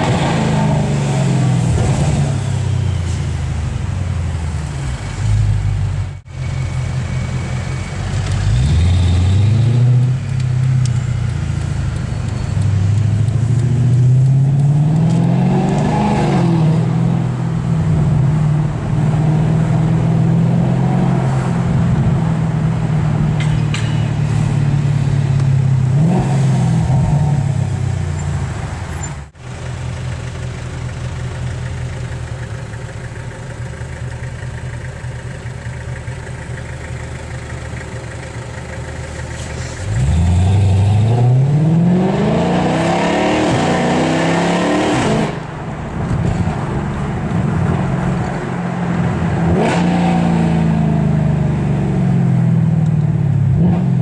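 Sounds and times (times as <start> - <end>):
car engine accelerating: 6.4 - 23.4.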